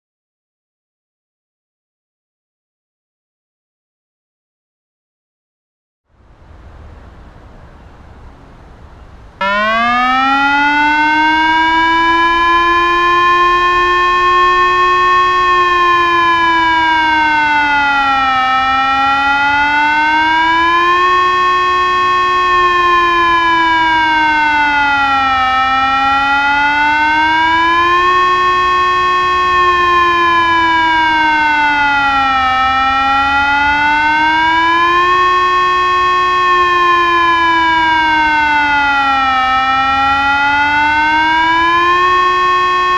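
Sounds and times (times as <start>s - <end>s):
electronic siren wavering: 9.4s - 42.9s.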